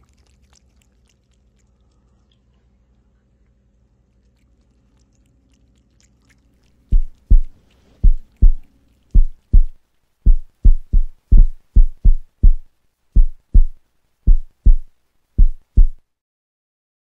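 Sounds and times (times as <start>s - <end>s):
deep thumping music beat: 7.0s - 8.6s, 9.2s - 9.7s, 10.3s - 12.6s, 13.2s - 16.0s.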